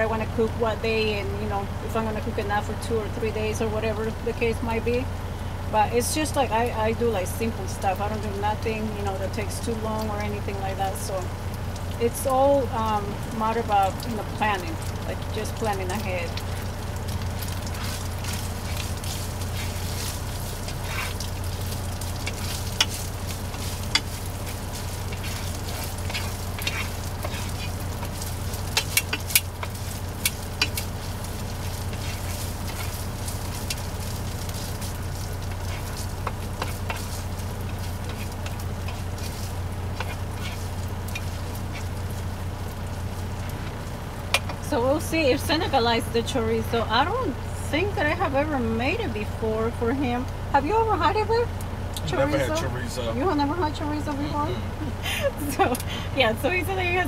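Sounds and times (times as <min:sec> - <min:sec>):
sausage sizzling in a skillet: 0:00.0 - 0:48.4
low hum: 0:00.0 - 0:57.0
sharp popping of frying fat: 0:06.0 - 0:47.3.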